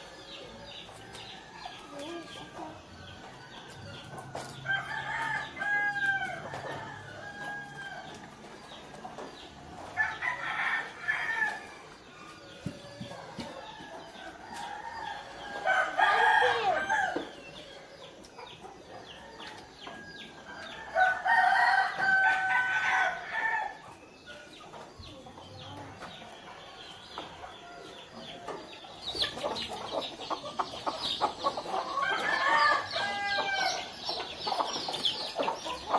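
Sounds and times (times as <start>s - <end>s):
chickens clucking: 0.0s - 35.9s
rooster crowing: 14.6s - 17.3s, 20.9s - 23.8s, 31.9s - 33.9s.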